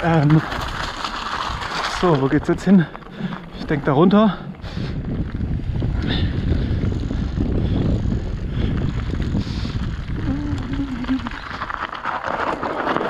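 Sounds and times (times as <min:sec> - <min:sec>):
bike clattering on stones: 0:00.0 - 0:06.3, 0:09.8 - 0:13.0
wind buffeting microphone: 0:00.0 - 0:12.2
bike tyres rolling over gravel: 0:00.0 - 0:13.0
wavering low hum: 0:02.8 - 0:11.8.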